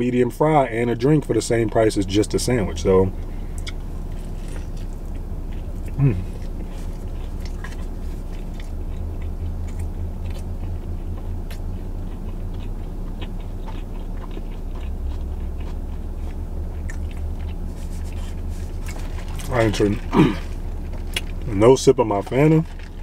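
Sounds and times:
low hum inside vehicle cabin: 0.0s - 23.0s
person chewing food: 1.2s - 23.0s.

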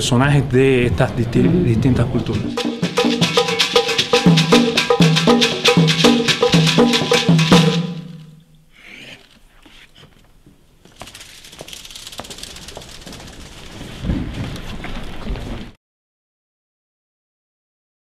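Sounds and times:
hand drums playing fast rhythm: 2.3s - 8.4s.

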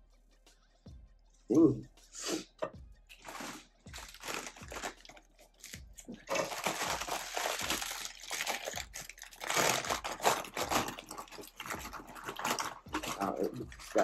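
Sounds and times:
chip bag crinkling: 3.2s - 14.0s.

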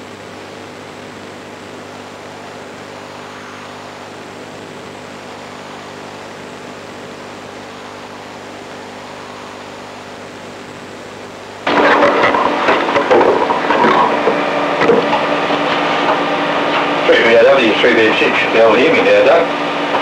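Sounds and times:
low even hum: 0.3s - 20.0s
steady hiss: 11.6s - 20.0s.

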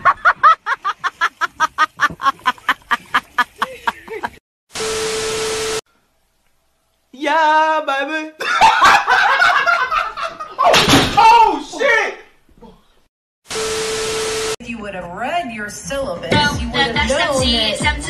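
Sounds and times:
bursts of laughter: 0.0s - 4.4s, 8.4s - 10.8s.

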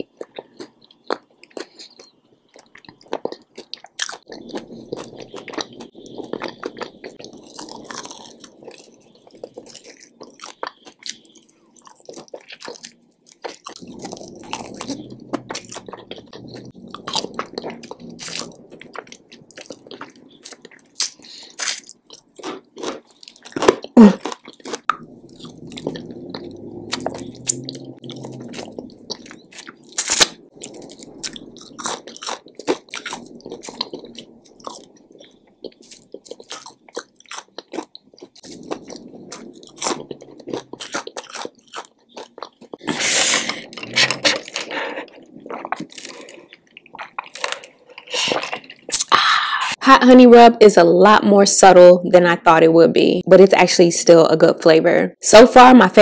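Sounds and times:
chicken wing crunching: 0.0s - 49.0s
wet mouth and lip sounds: 0.0s - 49.3s
sucking meat off bone: 42.8s - 49.5s.

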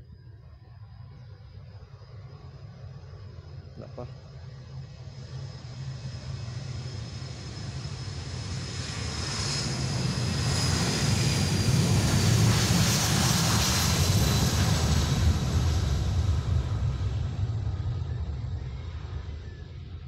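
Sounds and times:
high jet engine whine: 0.0s - 20.0s
jet airliner engines roaring: 0.0s - 20.0s.

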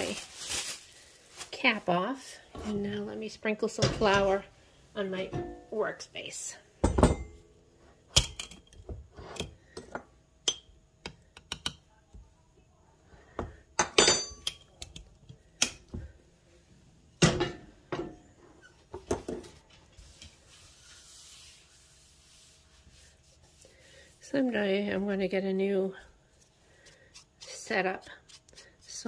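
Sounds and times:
hand brushing flour on counter: 19.9s - 24.8s.

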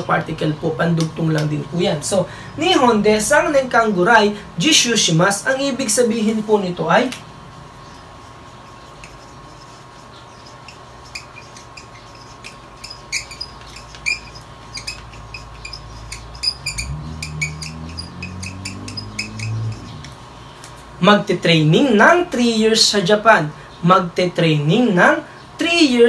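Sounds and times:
marker pen squeaking on chart: 8.2s - 20.8s.

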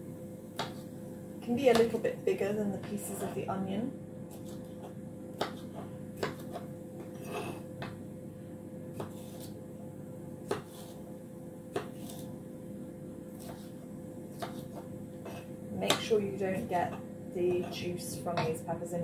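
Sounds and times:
steady low hum: 0.0s - 19.0s
knife chopping on wooden board: 0.6s - 0.9s, 1.6s - 2.0s, 4.3s - 8.0s, 8.9s - 9.6s, 10.4s - 11.0s, 11.7s - 12.3s, 13.4s - 18.6s.

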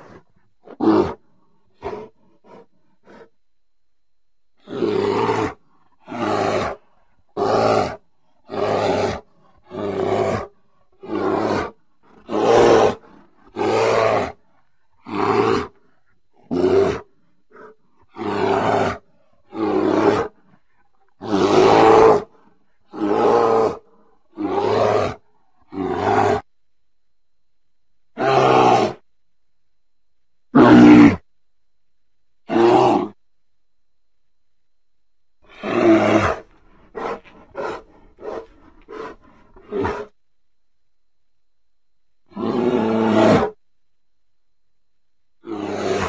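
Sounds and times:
bear roaring: 0.0s - 3.3s, 4.6s - 26.5s, 28.2s - 29.0s, 30.5s - 31.3s, 32.5s - 33.2s, 35.4s - 40.2s, 42.2s - 43.6s, 45.4s - 46.0s.

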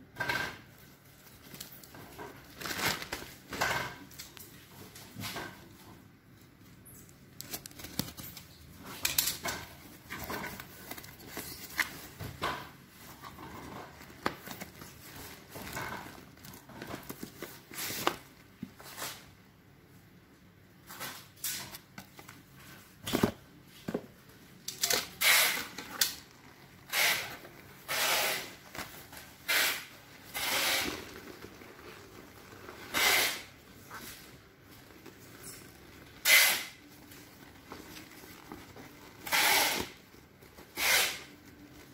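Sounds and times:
plastic crinkling: 0.8s - 5.0s, 6.9s - 19.2s, 21.5s - 41.9s
cardboard scraping and rubbing: 25.2s - 41.9s.

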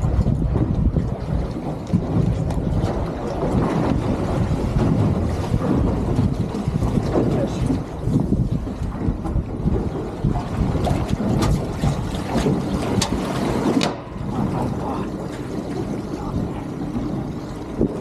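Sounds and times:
water washing: 0.0s - 18.0s
wind buffeting microphone: 0.0s - 18.0s.

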